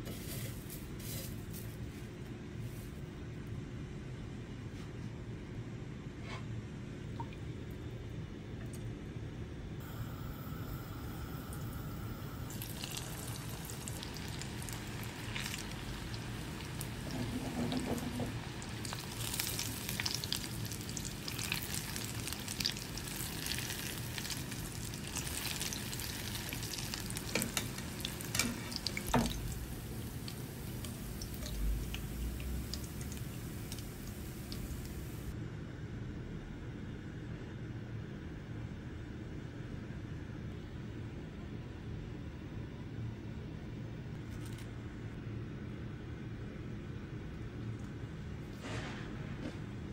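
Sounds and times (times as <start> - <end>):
deep-frying oil sizzling: 12.5 - 35.3.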